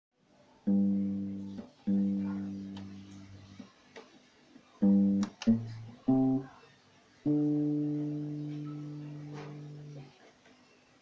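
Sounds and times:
acoustic guitar strummed chords: 0:00.7 - 0:03.4, 0:04.8 - 0:06.5, 0:07.3 - 0:10.1
low guitar note: 0:04.8 - 0:06.5, 0:07.3 - 0:10.1.

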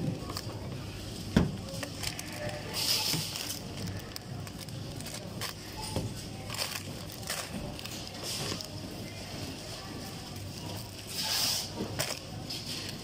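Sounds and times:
plastic wrappers crinkling: 0:01.7 - 0:13.0.

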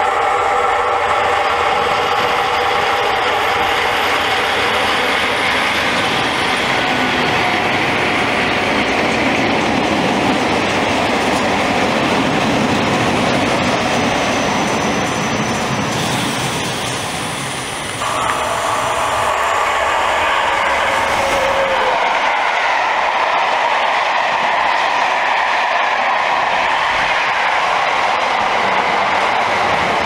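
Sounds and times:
train wheel and rail noise: 0:00.0 - 0:30.0
locomotive horn tones: 0:18.0 - 0:22.2.

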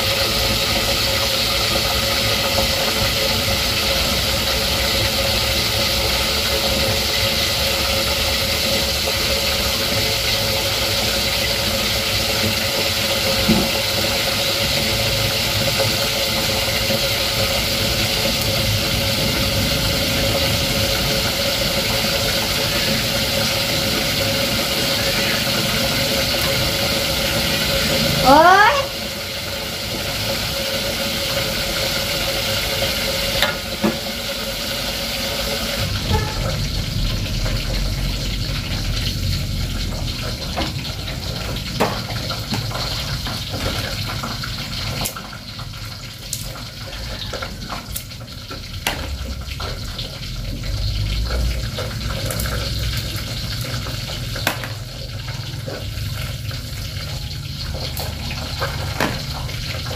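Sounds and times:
hot oil sizzling: 0:00.0 - 0:59.9
low rumble: 0:35.8 - 0:41.1.

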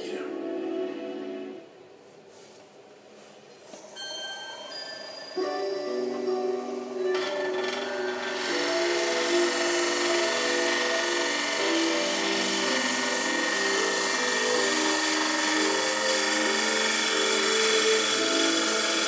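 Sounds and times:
background music of held notes: 0:00.0 - 0:02.5, 0:03.9 - 0:19.0
wood lathe cutting hiss: 0:05.4 - 0:19.0.

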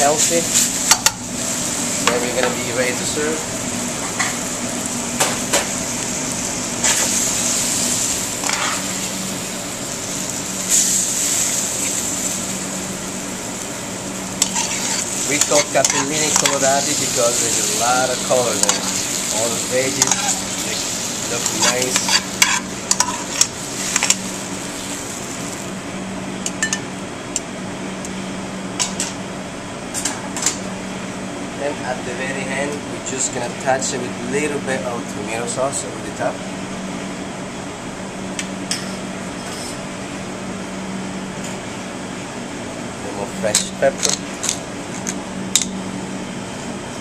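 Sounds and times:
food sizzling in a pan: 0:00.0 - 0:25.7
steady low hum: 0:00.0 - 0:47.0
metal tongs clinking on pan: 0:14.4 - 0:16.7
metal tongs scraping a pan: 0:14.4 - 0:17.4, 0:18.5 - 0:19.1, 0:19.8 - 0:20.8, 0:21.4 - 0:24.2.

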